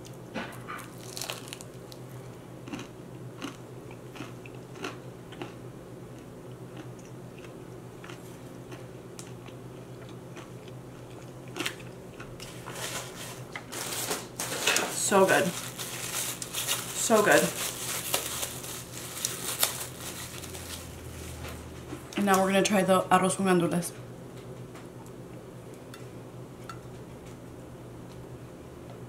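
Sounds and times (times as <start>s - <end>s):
crunchy chewing: 0.0s - 5.6s, 6.2s - 13.7s, 15.5s - 21.5s.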